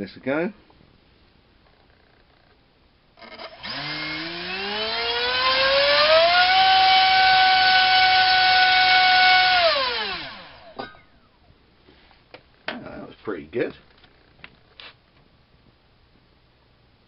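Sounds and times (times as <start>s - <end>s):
drone motor whine: 3.2s - 10.7s.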